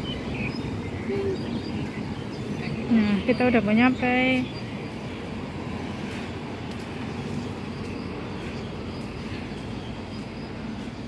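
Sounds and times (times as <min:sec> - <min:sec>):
low city rumble: 0:00.0 - 0:11.0
footsteps walking: 0:04.9 - 0:11.0.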